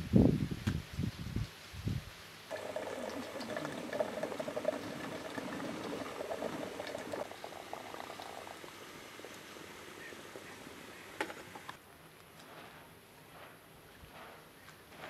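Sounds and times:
hot water pouring into metal kettle: 0:02.5 - 0:11.7.

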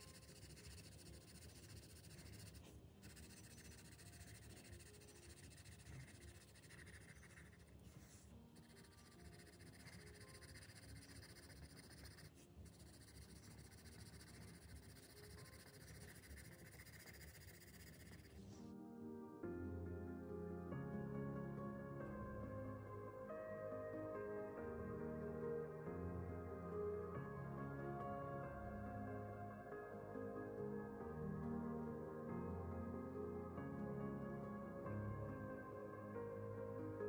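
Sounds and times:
pencil scratching on paper: 0:00.0 - 0:18.4.

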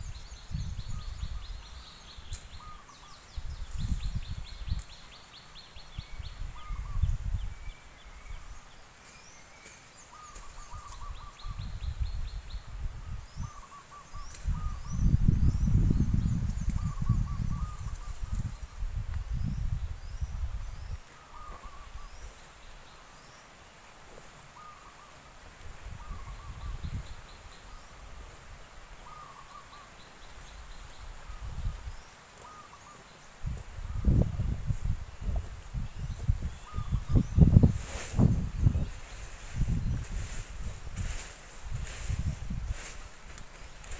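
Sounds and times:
wind rumble on microphone: 0:00.0 - 0:05.0, 0:05.9 - 0:08.6, 0:10.5 - 0:22.4, 0:25.6 - 0:29.2, 0:30.4 - 0:32.1, 0:33.4 - 0:43.9
rustling leaves: 0:00.0 - 0:43.9
bird calling: 0:01.0 - 0:03.3, 0:10.0 - 0:11.6, 0:13.4 - 0:15.1, 0:21.0 - 0:22.4, 0:24.5 - 0:25.3, 0:29.0 - 0:31.4, 0:32.4 - 0:33.3.

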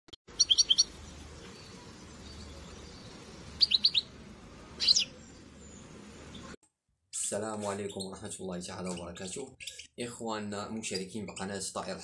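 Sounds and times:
goldfinch chirping: 0:00.3 - 0:04.1, 0:04.8 - 0:06.5.

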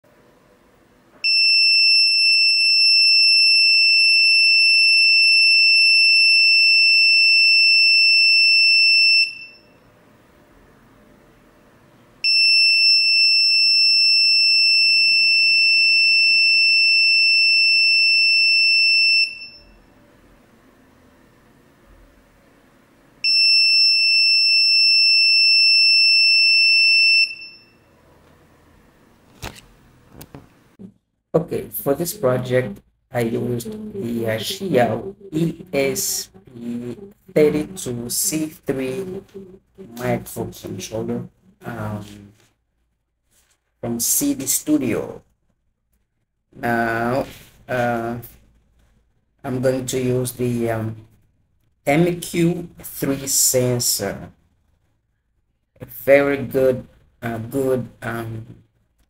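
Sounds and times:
high-pitched alarm tone: 0:01.2 - 0:09.8, 0:12.2 - 0:19.9, 0:23.2 - 0:27.9, 0:33.8 - 0:40.3.

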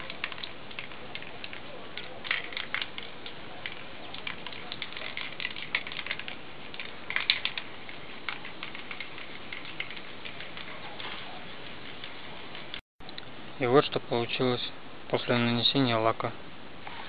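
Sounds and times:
spray can ball rattling: 0:00.0 - 0:12.8.

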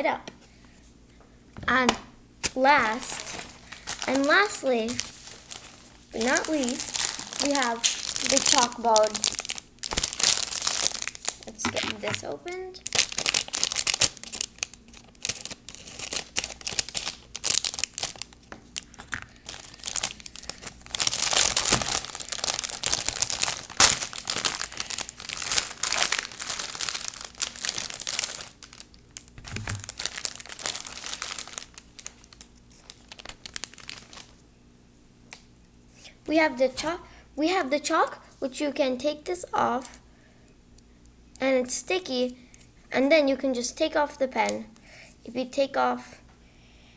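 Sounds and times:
plastic packaging crinkling and tearing: 0:02.4 - 0:34.4.

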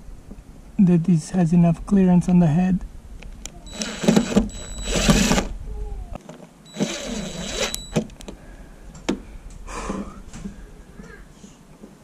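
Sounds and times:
cordless drill whining: 0:03.6 - 0:05.6, 0:06.7 - 0:08.2.

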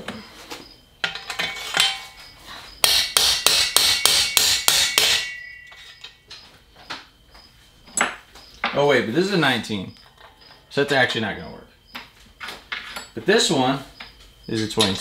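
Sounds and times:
light clinking of parts: 0:01.0 - 0:02.3, 0:05.2 - 0:07.0, 0:12.4 - 0:13.3, 0:14.0 - 0:15.0
hammer striking metal: 0:02.8 - 0:06.2.

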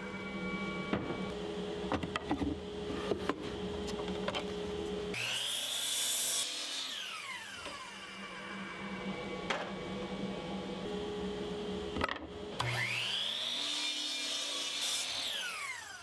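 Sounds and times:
knocks and clicks of board handling: 0:01.9 - 0:04.5
miter saw cutting wood: 0:05.1 - 0:09.2, 0:12.6 - 0:16.0.

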